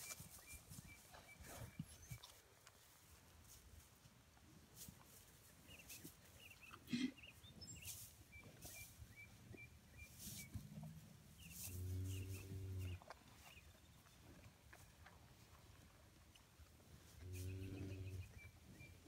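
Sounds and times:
cattle eating hay: 7.7 - 18.2.

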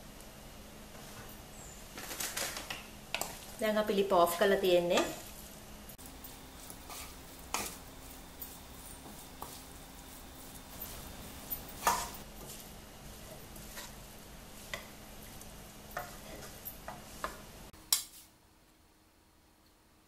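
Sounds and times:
background hiss: 0.0 - 19.9
wooden spatulas stirring in wok: 2.0 - 18.2.

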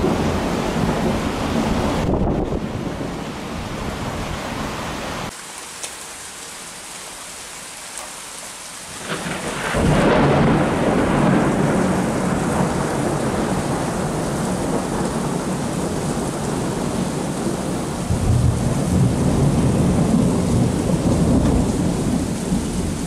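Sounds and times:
thunder rolling: 0.0 - 3.2, 9.0 - 23.0
rain hiss: 2.9 - 23.0.

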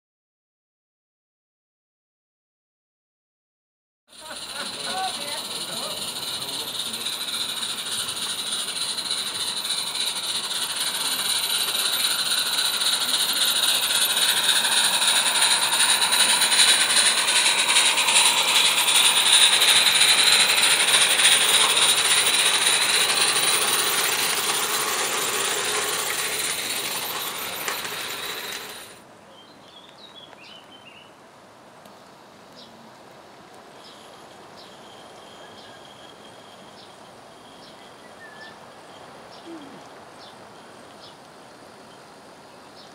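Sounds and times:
steam locomotive hiss and clatter: 4.1 - 29.0
faint bird chirps: 33.8 - 41.2.

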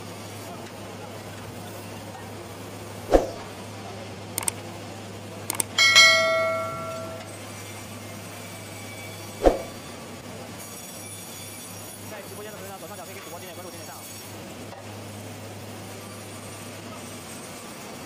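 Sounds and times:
light clicks: 4.4 - 4.6
loud metal clang: 5.8 - 7.3.

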